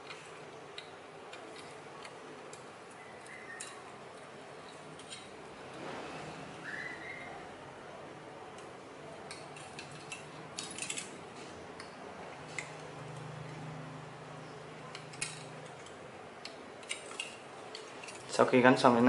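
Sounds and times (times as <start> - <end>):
metal strips crinkling: 9.3 - 11.5, 14.9 - 18.6.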